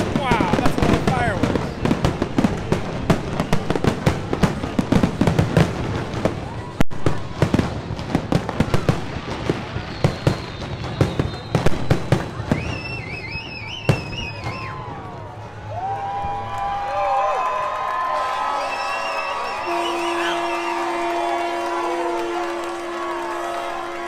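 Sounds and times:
fireworks bursting and crackling: 0.0 - 15.5, 18.4 - 24.0
high wavering whistle: 12.5 - 14.8, 18.5 - 21.4.

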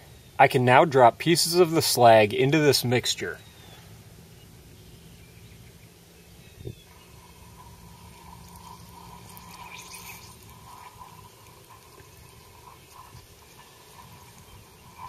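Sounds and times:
water fizzing and bubbling: 6.8 - 15.0.

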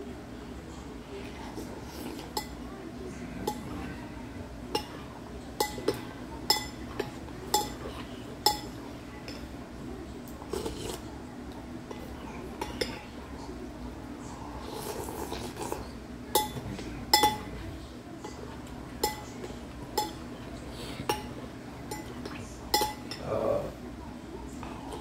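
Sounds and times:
low background din: 0.0 - 25.0
utensils clinking against bowl: 1.9 - 2.6, 3.4 - 4.0, 4.7 - 9.5, 11.8 - 13.2, 14.9 - 23.3.

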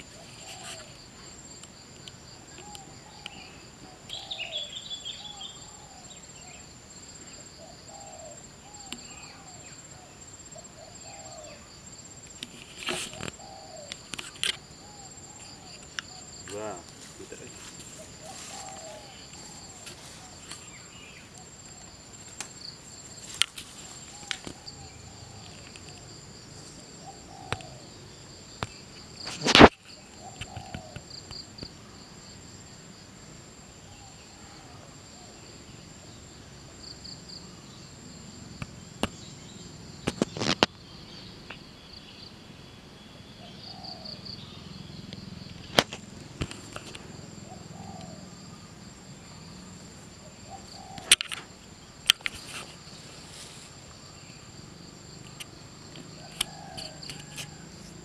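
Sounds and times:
insects shrilling: 0.0 - 27.9.

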